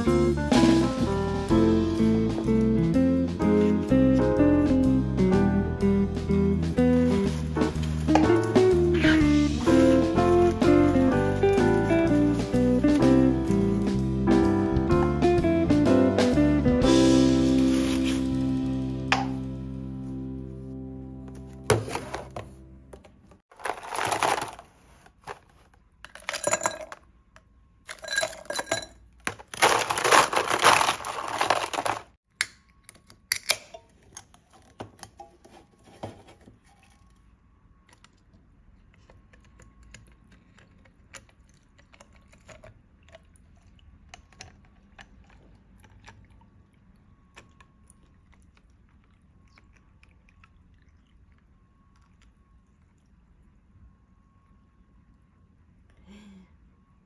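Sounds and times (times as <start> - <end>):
ice cubes clinking in a glass: 26.1 - 27.0, 27.9 - 32.1.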